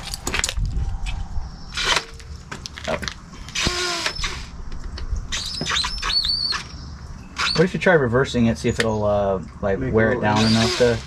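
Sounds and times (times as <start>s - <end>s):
cordless drill running: 10.4s - 11.0s.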